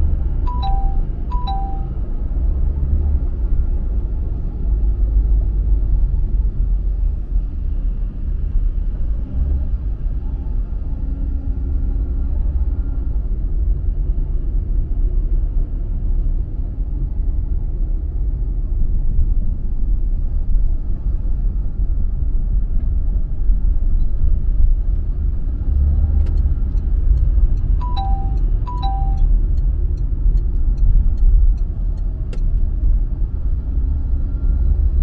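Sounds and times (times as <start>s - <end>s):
car driving rumble: 0.0s - 35.0s
regular ticking: 27.8s - 32.4s.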